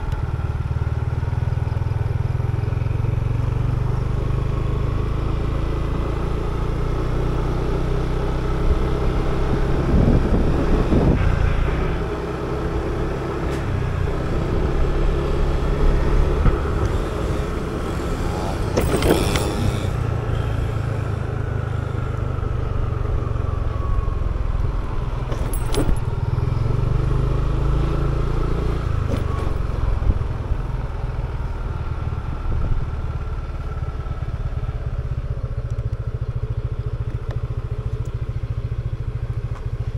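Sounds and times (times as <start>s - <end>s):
motor scooter engine running: 13.9s - 23.8s.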